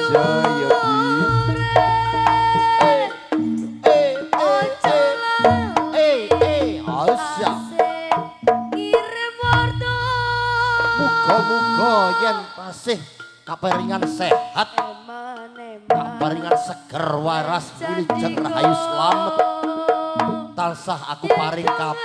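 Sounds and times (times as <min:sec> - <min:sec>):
hand drums: 0:00.0 - 0:22.0
deep pulsing bass: 0:00.2 - 0:02.8, 0:09.4 - 0:11.2.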